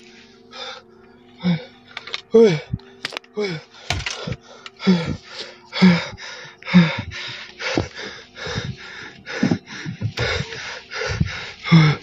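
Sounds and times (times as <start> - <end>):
man breathing rapidly and gasping: 3.4 - 12.0.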